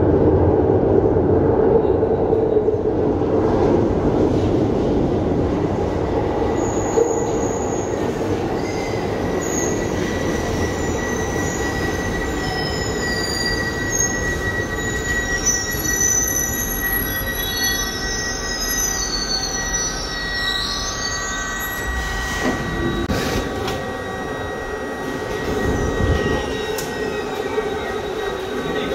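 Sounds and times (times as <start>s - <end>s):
subway train running: 0.0s - 28.9s
high-pitched wheel squeals: 6.5s - 28.9s
steady high whine: 13.6s - 28.9s.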